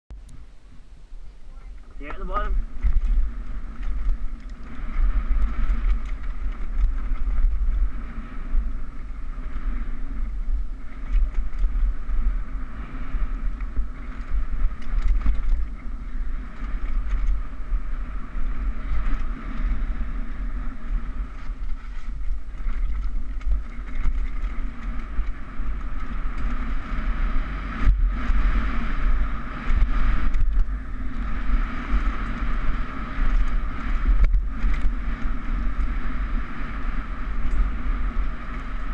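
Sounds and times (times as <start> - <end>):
wind rumble on microphone: 0.1 - 38.9
bike tyres and frame rattling: 0.2 - 38.9.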